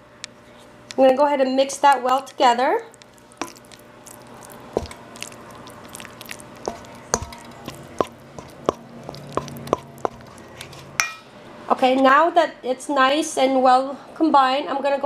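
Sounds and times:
spatula stirring thick mixture: 1.8 - 11.0
spatula tapping metal bowl: 3.0 - 11.2.

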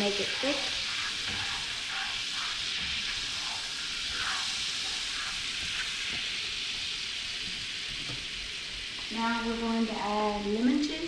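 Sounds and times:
butter sizzling in a skillet: 0.0 - 11.0.

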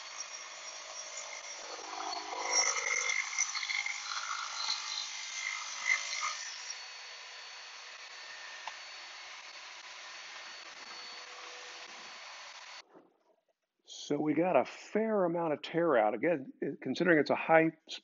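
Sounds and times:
saw blade cutting wood: 0.0 - 12.8
shop vacuum running: 6.7 - 12.8.

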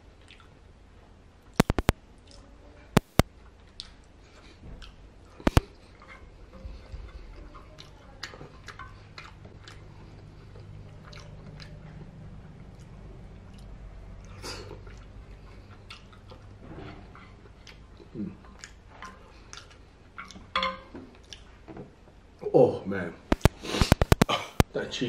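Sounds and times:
steady low hum: 0.0 - 25.0
close-up chewing: 0.2 - 0.6, 1.6 - 21.7, 23.3 - 24.7
wet mouth clicks: 1.6 - 2.4, 3.0 - 4.2, 4.8 - 5.8, 7.8 - 12.1, 23.3 - 24.7.

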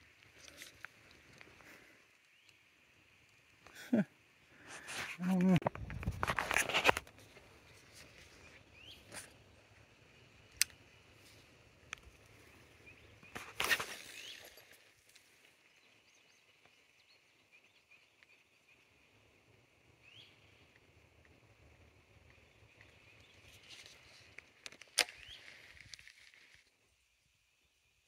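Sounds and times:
bird chirps: 8.3 - 9.1, 20.0 - 20.7.

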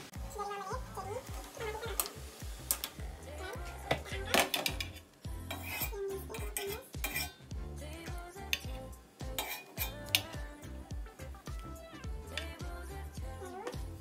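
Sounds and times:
background music: 0.0 - 14.0
metal spoon clinking on pot: 4.4 - 7.4, 9.4 - 10.2.

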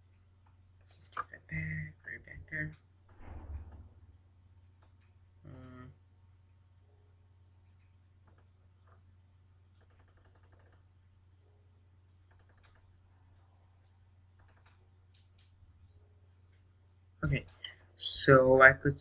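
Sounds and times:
computer clicks: 7.6 - 9.0, 9.8 - 10.8, 12.0 - 12.9, 13.8 - 15.6.

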